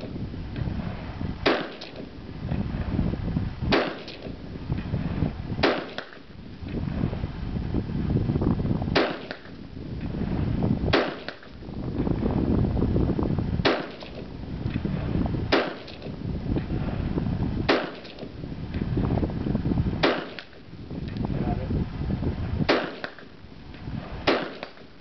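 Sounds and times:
wind rumble on microphone: 0:00.0 - 0:25.0
rifle shots with echo: 0:01.4 - 0:02.2, 0:03.7 - 0:04.4, 0:05.6 - 0:06.3, 0:08.9 - 0:09.6, 0:10.9 - 0:11.6, 0:13.6 - 0:14.3, 0:15.5 - 0:16.1, 0:17.7 - 0:18.4, 0:20.0 - 0:20.7, 0:22.6 - 0:23.4, 0:24.2 - 0:25.0.

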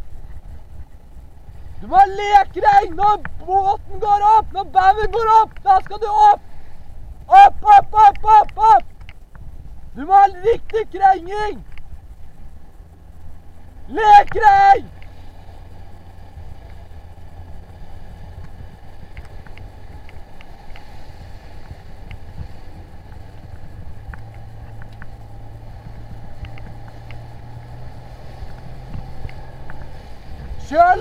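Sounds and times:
outboard motor running: 0:00.0 - 0:31.0
wind and water rushing: 0:00.0 - 0:31.0
faint ticks of spray: 0:02.5 - 0:03.4, 0:08.1 - 0:11.0, 0:11.6 - 0:30.6.

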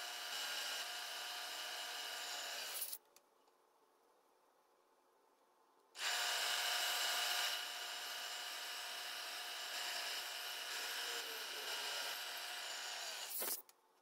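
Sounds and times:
drill bit cutting metal: 0:06.0 - 0:13.6.

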